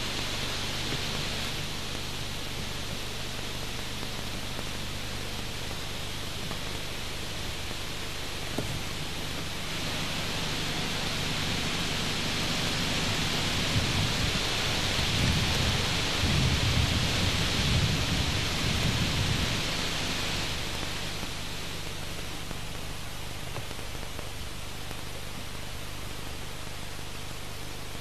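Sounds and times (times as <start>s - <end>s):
steady hiss: 0.0s - 28.0s
wind buffeting microphone: 13.6s - 19.7s.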